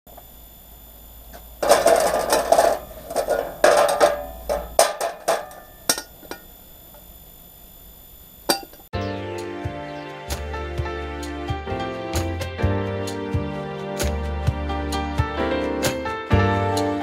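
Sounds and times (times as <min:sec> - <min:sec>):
metal parts clanking on workbench: 0:01.6 - 0:06.5.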